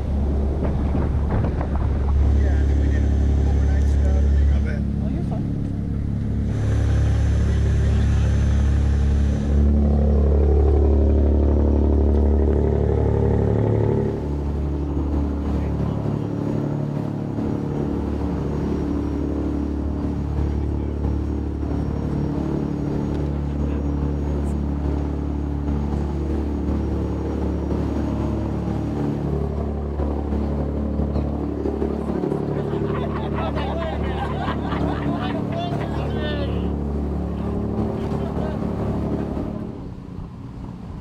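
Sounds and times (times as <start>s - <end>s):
boat engines droning: 0.0s - 41.0s.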